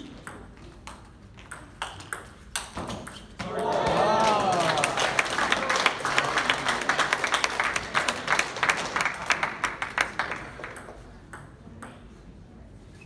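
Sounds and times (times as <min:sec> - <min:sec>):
crowd applauding: 0:03.5 - 0:10.8.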